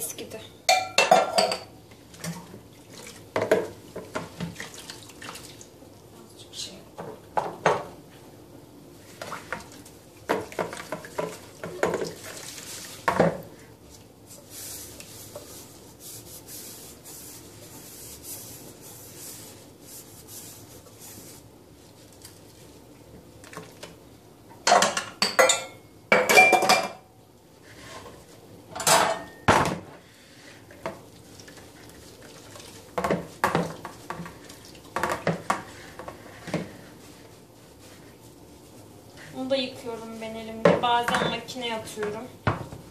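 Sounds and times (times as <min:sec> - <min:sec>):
washing noise in water: 0:01.9 - 0:06.2, 0:08.9 - 0:24.2, 0:30.1 - 0:42.9.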